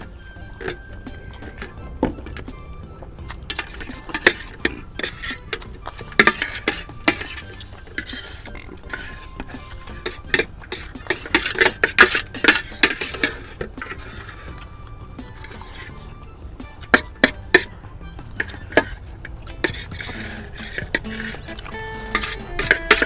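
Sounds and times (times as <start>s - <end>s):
utensils scraping and clinking on plates: 0.0s - 23.0s.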